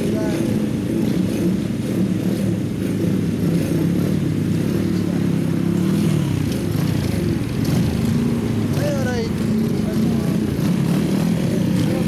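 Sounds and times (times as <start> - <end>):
small motorbike engines idling: 4.0 - 12.0.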